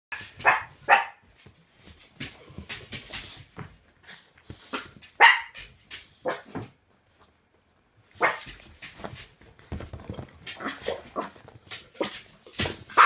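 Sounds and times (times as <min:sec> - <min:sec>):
dogs barking: 0:00.1 - 0:01.2, 0:04.7 - 0:05.6, 0:08.2 - 0:08.6
dogs scuffling: 0:00.1 - 0:13.0.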